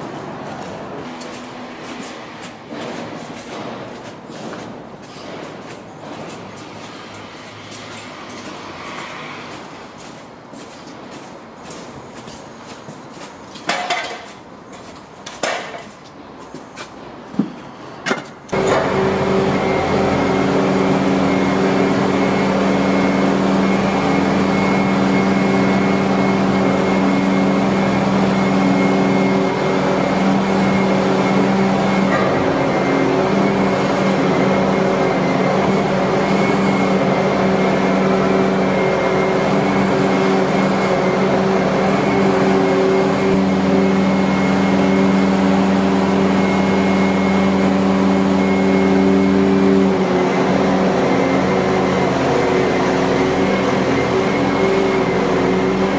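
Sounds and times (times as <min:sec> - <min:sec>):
diesel engine running: 0:18.5 - 0:55.9.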